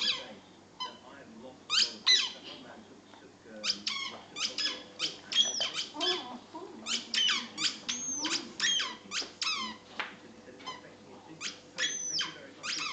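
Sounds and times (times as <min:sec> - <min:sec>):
dog whining and squealing: 0:01.7 - 0:02.4, 0:03.6 - 0:09.8, 0:11.4 - 0:12.9.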